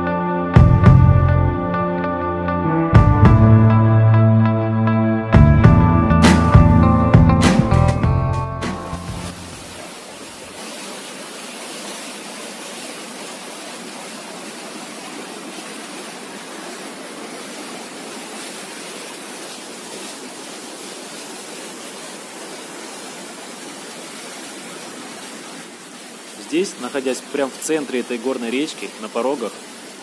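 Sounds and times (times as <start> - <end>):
river rushing over rapids: 9.3 - 30.0.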